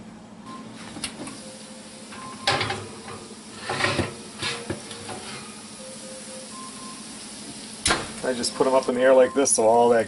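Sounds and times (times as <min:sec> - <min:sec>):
bacon sizzling: 0:01.4 - 0:09.0
oven door opening with a clunk: 0:02.2 - 0:05.6, 0:07.8 - 0:08.3
metal baking sheet clattering: 0:02.5 - 0:05.6.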